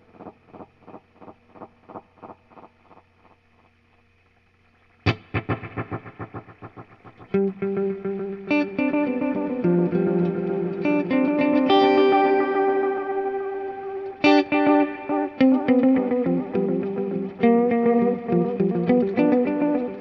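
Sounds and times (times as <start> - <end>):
electric guitar with delay echoes: 0.0 - 3.4, 5.0 - 20.0.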